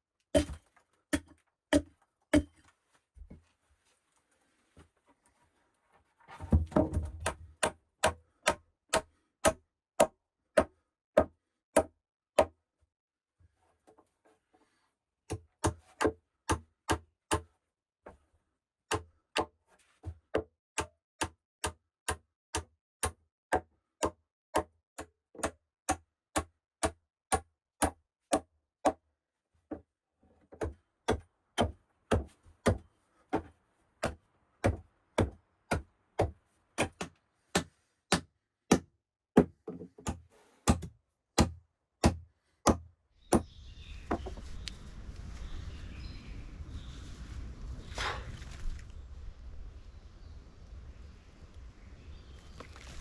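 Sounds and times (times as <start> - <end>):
hammer and hatchet striking wood: 0.3 - 2.6, 6.5 - 12.6, 15.3 - 17.5, 18.9 - 29.0, 30.5 - 43.5.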